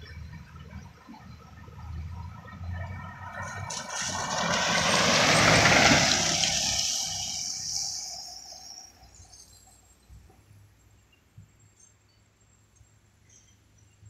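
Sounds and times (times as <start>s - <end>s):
pickup engine: 0.0s - 9.8s
tyre hiss on wet road: 3.5s - 9.8s.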